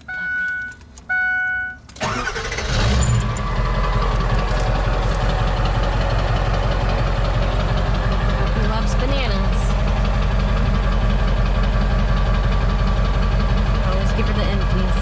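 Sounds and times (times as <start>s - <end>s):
dashboard warning chime beeping: 0.0s - 2.4s
truck engine cranking and idling: 0.0s - 15.0s.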